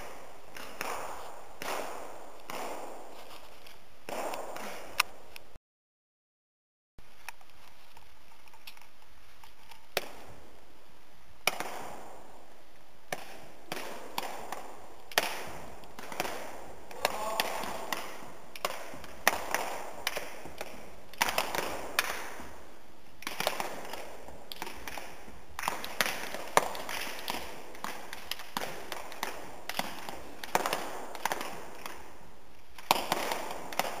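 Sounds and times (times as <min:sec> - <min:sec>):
hands slapping feet and bodies: 0:00.0 - 0:05.2.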